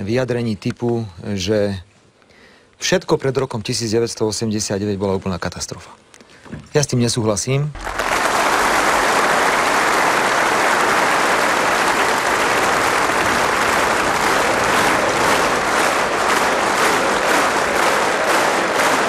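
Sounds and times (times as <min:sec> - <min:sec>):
large audience applauding: 0:07.7 - 0:19.0.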